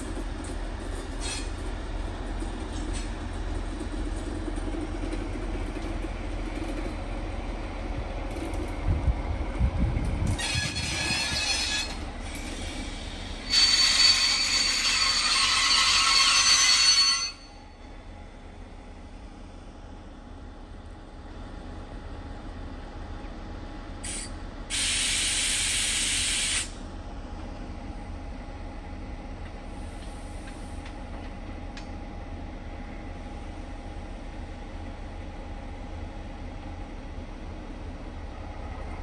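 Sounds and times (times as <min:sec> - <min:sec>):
diesel locomotives idling: 0:00.0 - 0:39.0
air brake hissing: 0:11.4 - 0:14.4, 0:24.0 - 0:26.8.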